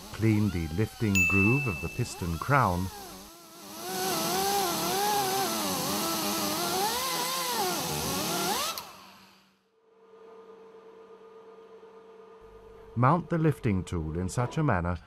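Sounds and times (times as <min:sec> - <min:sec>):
power tool motor whining: 0:00.0 - 0:09.4.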